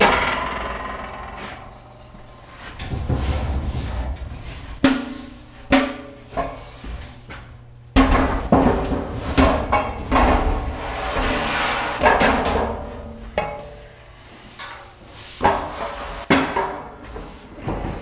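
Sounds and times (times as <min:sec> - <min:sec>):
metal banging and scraping: 0:00.0 - 0:07.0.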